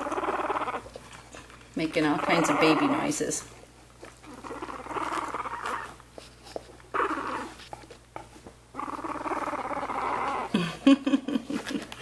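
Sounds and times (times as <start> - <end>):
puppy grunting and whimpering: 0.0 - 1.2, 2.0 - 3.4, 4.0 - 6.1, 6.8 - 7.8, 8.7 - 11.0.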